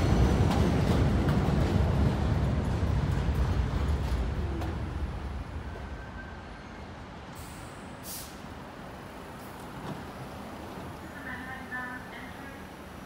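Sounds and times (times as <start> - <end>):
train wheels rumbling: 0.0 - 13.0
air hiss: 7.4 - 8.5.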